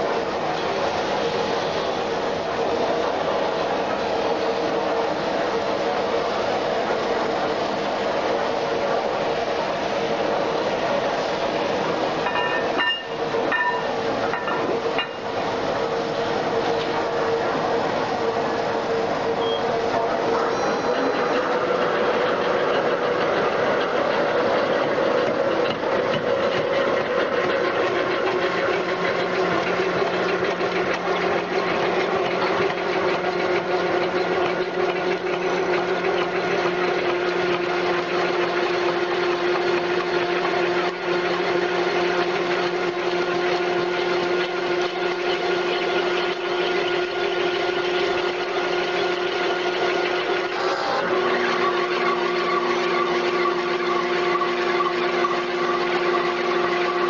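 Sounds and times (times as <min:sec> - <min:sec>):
constant machine whine: 0:00.0 - 0:57.0
lathe machining steel: 0:00.0 - 0:57.0.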